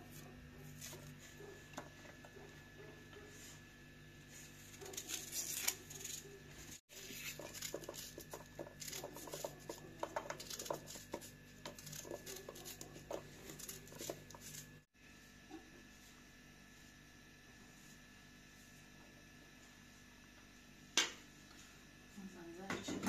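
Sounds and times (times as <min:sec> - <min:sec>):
knife cutting onion: 0:00.0 - 0:02.8, 0:04.4 - 0:14.9.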